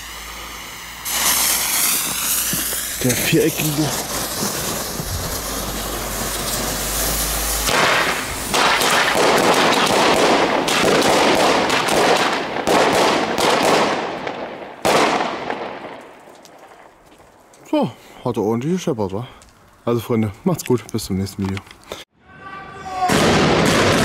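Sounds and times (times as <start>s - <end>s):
burning fuse hissing: 0.0s - 10.7s
firecracker bangs: 0.0s - 16.4s, 23.0s - 24.0s.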